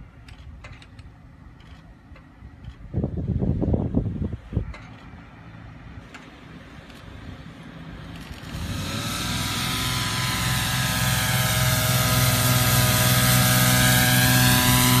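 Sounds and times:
fogger machine hum: 8.6 - 15.0.

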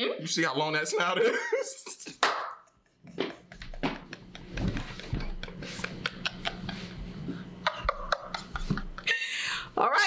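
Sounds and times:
man laughing: 0.9 - 9.4
woman laughing: 1.0 - 2.1, 2.8 - 9.7.

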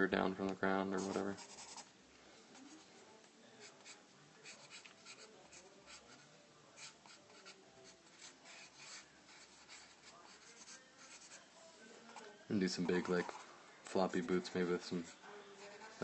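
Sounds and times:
pencil scratching on paper: 0.9 - 1.9, 3.6 - 6.2, 6.8 - 11.5, 14.2 - 16.0.

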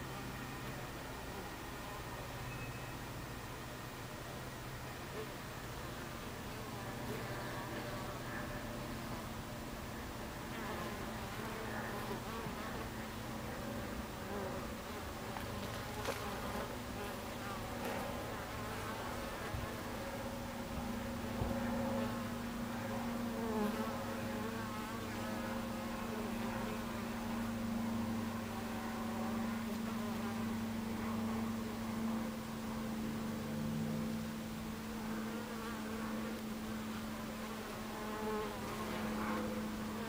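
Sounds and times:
bee colony humming: 0.0 - 40.0
single bees buzzing: 10.5 - 40.0.

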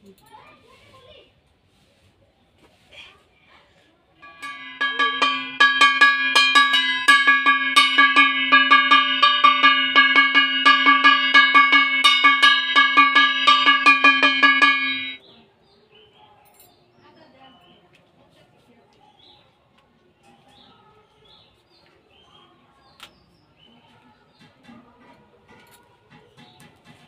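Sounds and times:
hand bell ringing rapidly: 4.2 - 15.2.

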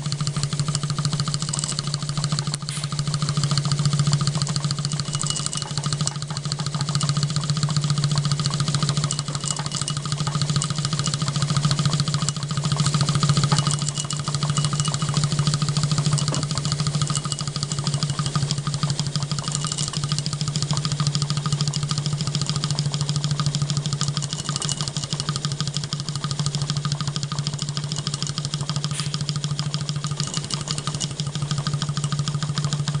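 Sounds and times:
steady low hum: 0.0 - 25.4, 26.0 - 31.7
model steam engine running: 0.0 - 33.0.

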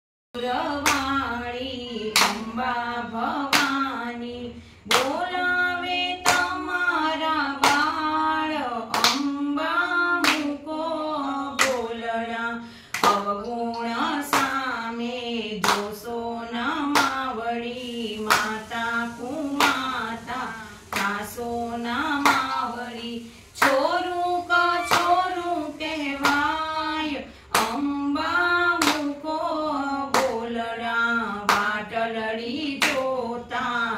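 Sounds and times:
women singing together: 0.4 - 33.9
hand claps: 0.7 - 1.2, 2.1 - 2.6, 3.4 - 4.0, 4.8 - 5.3, 6.2 - 6.7, 7.5 - 8.1, 8.8 - 9.5, 10.2 - 10.6, 11.5 - 12.0, 12.9 - 14.8, 15.6 - 16.2, 16.8 - 17.3, 18.2 - 18.6, 19.5 - 19.9, 20.9 - 21.4, 22.1 - 22.8, 23.6 - 23.9, 24.8 - 25.2, 26.2 - 29.3, 30.0 - 30.6, 31.4 - 31.9, 32.7 - 33.1.

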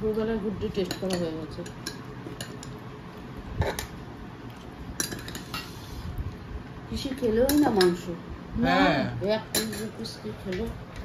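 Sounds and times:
spoons clinking against plates: 0.8 - 2.8, 5.0 - 5.8, 7.1 - 8.0, 9.5 - 10.6.

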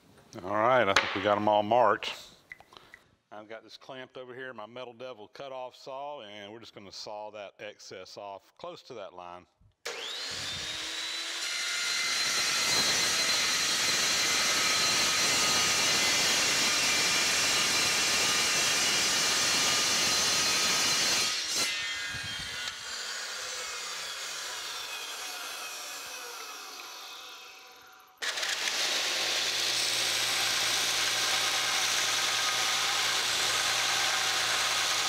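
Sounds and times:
metal saw whining: 9.9 - 35.0
saw blade cutting metal: 9.9 - 35.0.

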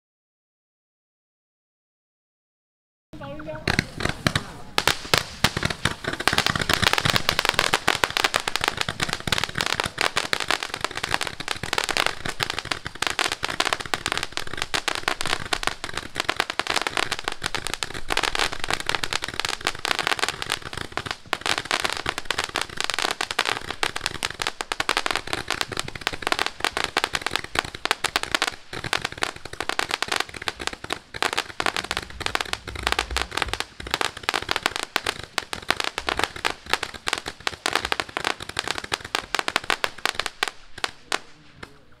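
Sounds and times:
roman candle firing shots: 3.2 - 42.0.

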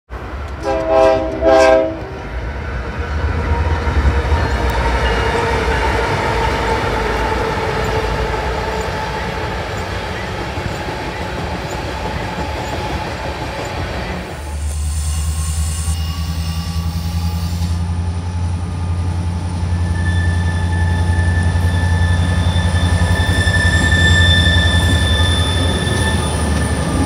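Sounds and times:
train rumbling past: 0.1 - 27.0
locomotive horn blasts: 0.6 - 2.2.

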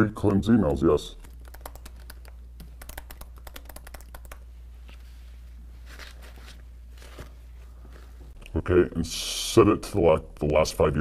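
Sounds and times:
steady low hum: 0.0 - 11.0
keyboard typing: 0.3 - 4.5.

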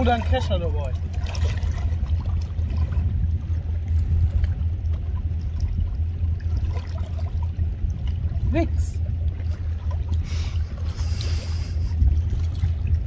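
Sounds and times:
low rumble: 0.0 - 13.0
water splashing and dripping: 0.0 - 13.0.

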